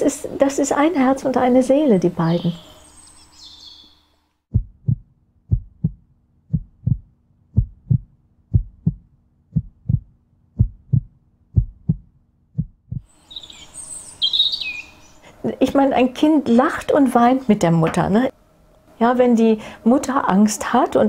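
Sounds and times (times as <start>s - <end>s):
birdsong: 1.4s - 4.2s, 13.1s - 15.4s
heartbeat thuds: 4.5s - 13.1s.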